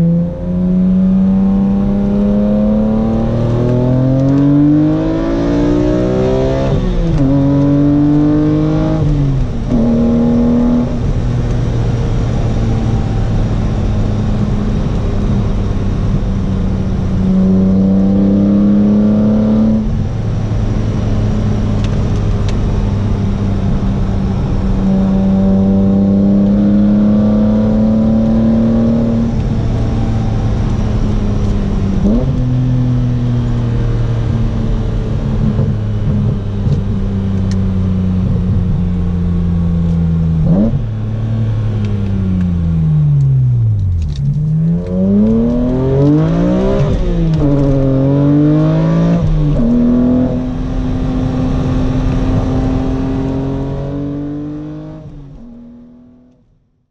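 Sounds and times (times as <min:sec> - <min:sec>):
car engine heard from cabin: 0:00.0 - 0:56.9.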